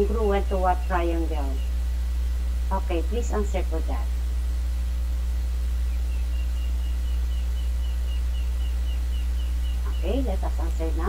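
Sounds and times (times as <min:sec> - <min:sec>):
electrical mains hum: 0:00.0 - 0:11.0
faint high-pitched chirps: 0:05.8 - 0:11.0.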